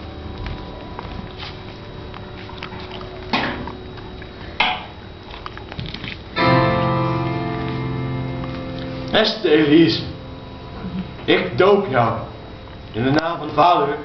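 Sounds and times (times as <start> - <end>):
guitar music: 6.3 - 14.0.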